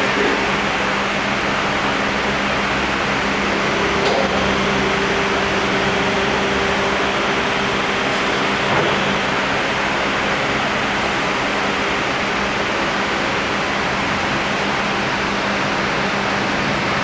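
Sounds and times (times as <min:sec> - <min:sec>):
hydraulic power pack humming: 0:00.0 - 0:17.0.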